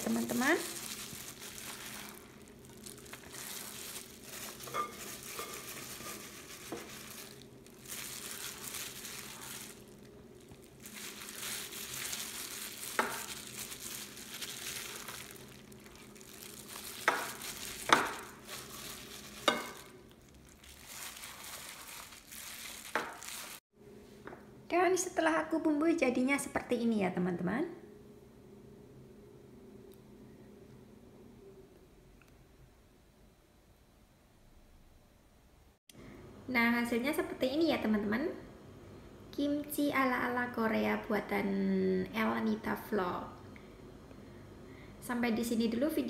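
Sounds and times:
plastic glove crinkling: 0:00.0 - 0:23.7
wet squishing of paste: 0:06.6 - 0:23.6.

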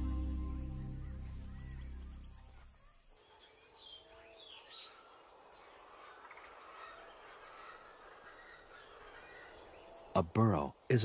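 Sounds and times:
background music: 0:00.0 - 0:02.6
insect sounds: 0:00.0 - 0:11.0.

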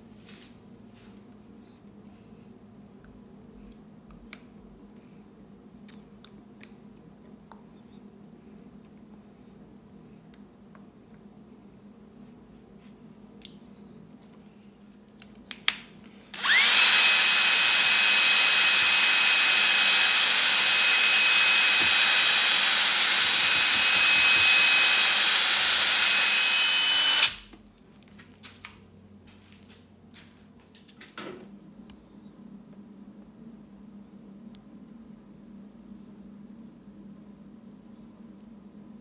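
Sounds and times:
drill motor whine: 0:16.4 - 0:27.4.

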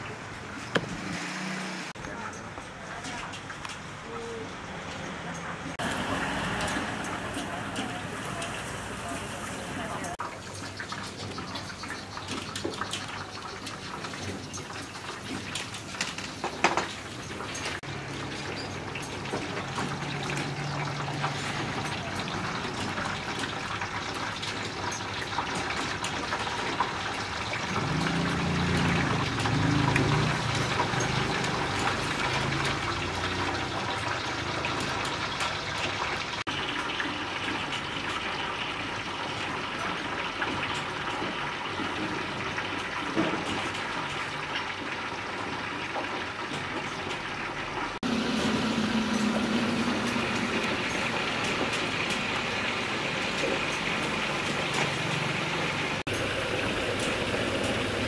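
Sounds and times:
water running: 0:05.8 - 0:47.2.

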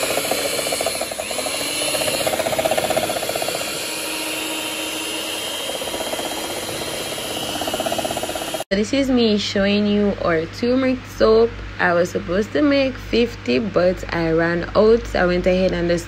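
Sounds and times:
electric mixer running: 0:00.0 - 0:08.7.

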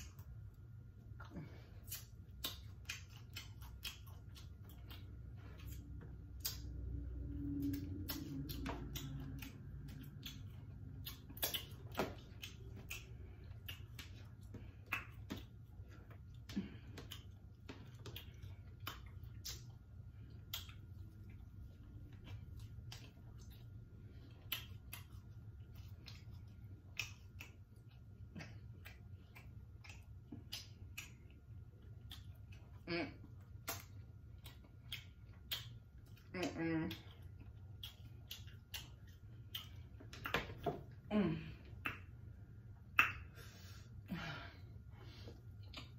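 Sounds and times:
lip smacking and chewing: 0:00.0 - 0:44.0, 0:44.9 - 0:45.9
low steady hum: 0:00.0 - 0:45.9
person humming mm: 0:41.1 - 0:41.7.

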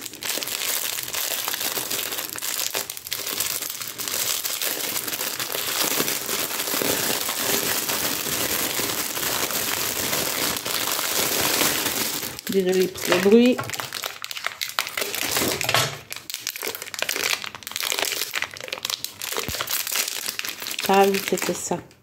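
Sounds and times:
plastic bag crinkling: 0:00.0 - 0:21.9.

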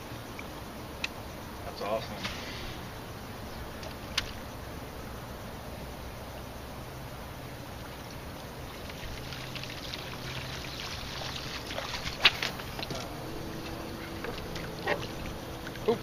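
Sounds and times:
low hum: 0:00.0 - 0:16.0
water lapping against boat hull: 0:07.6 - 0:16.0.

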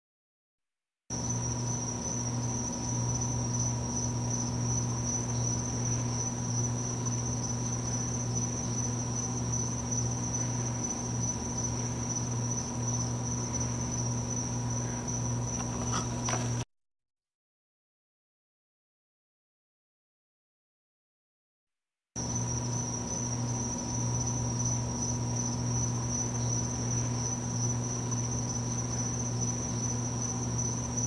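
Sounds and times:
constant low hum: 0:01.1 - 0:16.6, 0:22.2 - 0:31.0
high-pitched insect trill: 0:01.1 - 0:16.6, 0:22.2 - 0:31.0.

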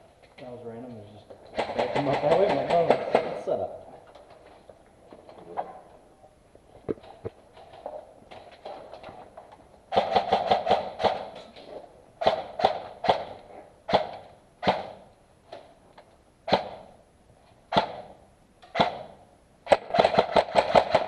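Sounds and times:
airsoft rifle shots echoing: 0:01.5 - 0:03.7, 0:09.9 - 0:11.4, 0:12.2 - 0:15.1, 0:16.4 - 0:17.0, 0:17.7 - 0:21.0.

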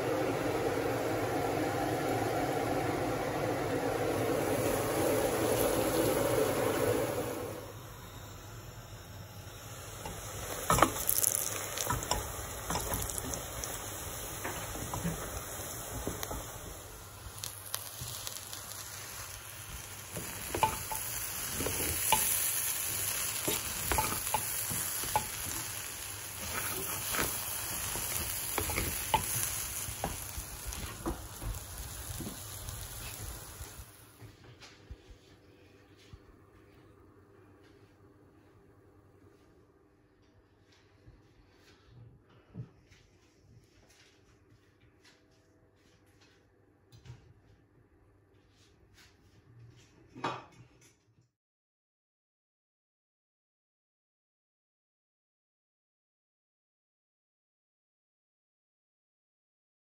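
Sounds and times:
rice sizzling in a metal pot: 0:00.0 - 0:34.2
wooden spatula scraping pot: 0:26.4 - 0:30.2.

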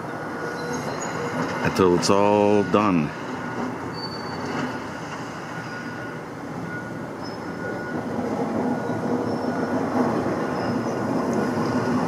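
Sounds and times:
excavator running: 0:00.0 - 0:12.0
faint high squeals: 0:00.4 - 0:01.6, 0:03.8 - 0:08.1, 0:08.7 - 0:11.8.

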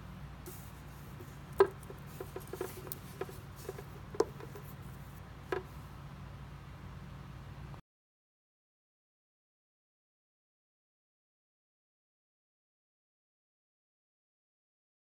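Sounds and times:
steady low hum: 0:00.0 - 0:07.8
light clicks and taps: 0:01.2 - 0:05.7.

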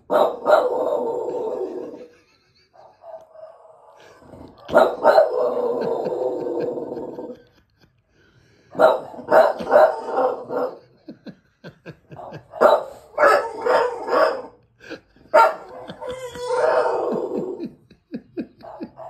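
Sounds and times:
dog barking: 0:00.0 - 0:01.1, 0:04.6 - 0:05.8, 0:08.7 - 0:10.8, 0:12.2 - 0:14.6, 0:15.3 - 0:16.0, 0:18.6 - 0:19.0.

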